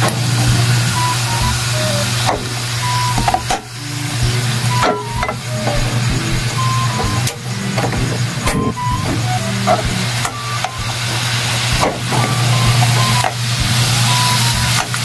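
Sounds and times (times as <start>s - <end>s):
meat sizzling: 9.9s - 15.0s.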